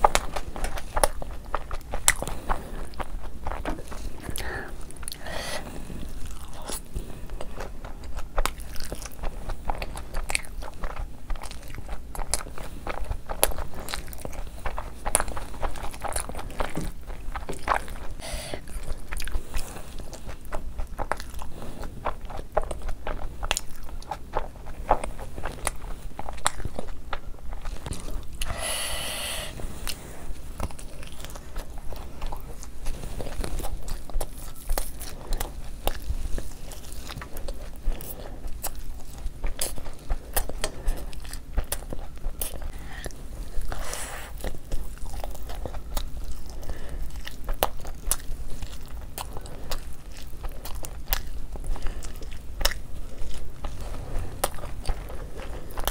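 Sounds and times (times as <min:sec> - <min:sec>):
chewing and crunching food: 0:00.0 - 0:55.9
mouth clicks: 0:18.2 - 0:18.7.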